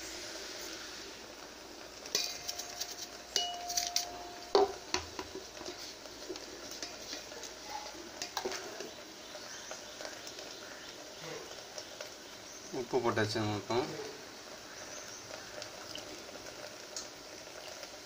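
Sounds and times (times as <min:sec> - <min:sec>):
metal utensils clinking on metal pot: 0:02.1 - 0:05.8, 0:08.2 - 0:08.9
ringing note: 0:03.4 - 0:04.6.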